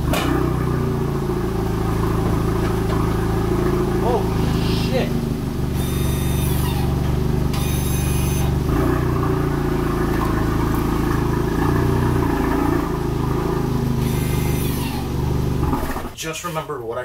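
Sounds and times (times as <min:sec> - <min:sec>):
car engine idling: 0:00.0 - 0:16.7.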